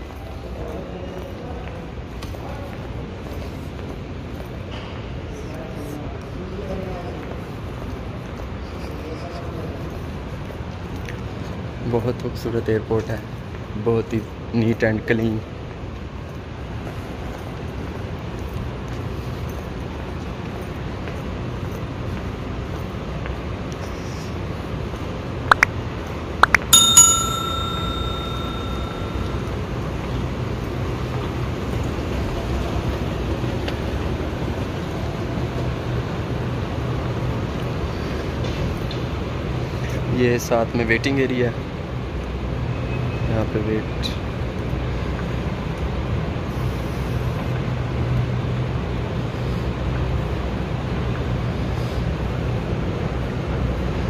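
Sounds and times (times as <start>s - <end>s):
airport terminal background noise: 0.0s - 54.0s
bell ding ringing: 26.4s - 29.7s.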